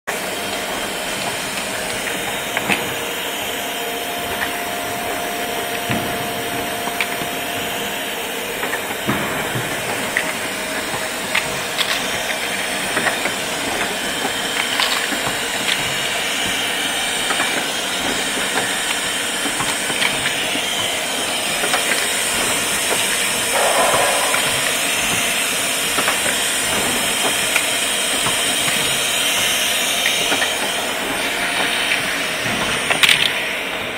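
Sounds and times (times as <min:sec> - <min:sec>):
machine hiss: 0:23.5 - 0:25.6.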